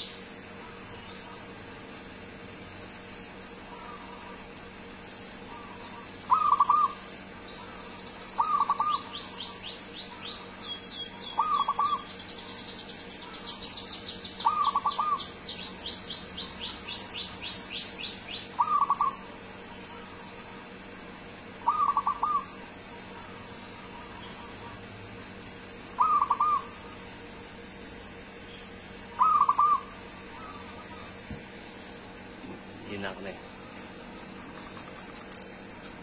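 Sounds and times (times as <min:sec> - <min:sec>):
dove cooing: 0:03.7 - 0:04.6, 0:05.4 - 0:07.1, 0:07.7 - 0:09.4, 0:11.2 - 0:12.1, 0:14.4 - 0:15.3, 0:18.5 - 0:19.3, 0:21.6 - 0:24.9, 0:25.9 - 0:27.1, 0:29.1 - 0:31.4
high-pitched bird chirping: 0:05.6 - 0:20.2.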